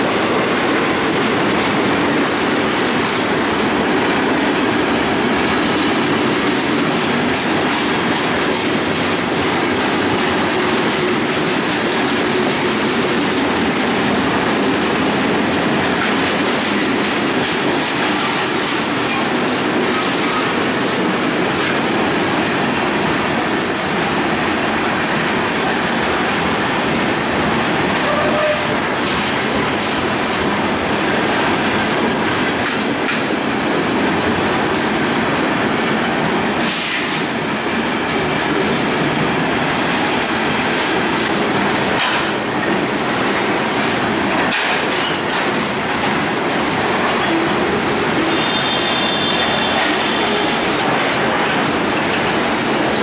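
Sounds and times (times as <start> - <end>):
steel wheels rumbling on rail: 0.0 - 53.0
high wheel squeal: 32.1 - 33.7
wheels clicking over rail joints: 34.0 - 53.0.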